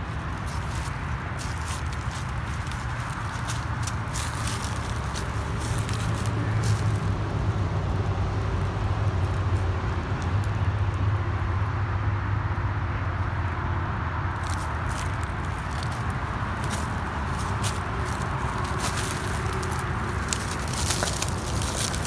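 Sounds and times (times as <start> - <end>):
footsteps crunching dry leaves: 0.0 - 7.4, 14.4 - 22.0
steady low rumble: 0.0 - 11.6, 13.1 - 22.0.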